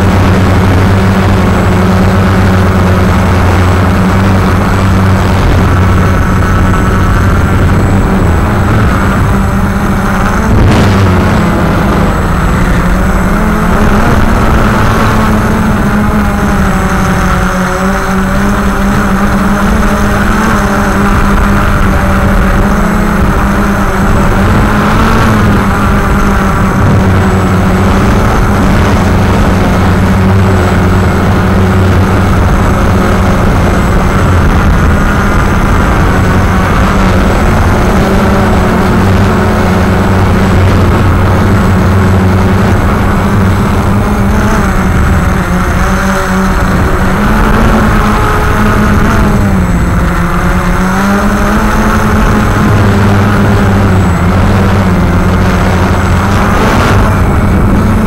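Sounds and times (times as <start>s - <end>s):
quadcopter propellers droning: 0.0s - 58.0s.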